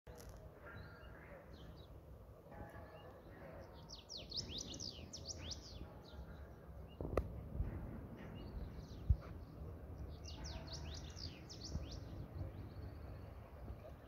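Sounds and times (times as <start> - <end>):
small birds chirping: 0.1 - 14.0
faint low rumble: 5.3 - 14.0.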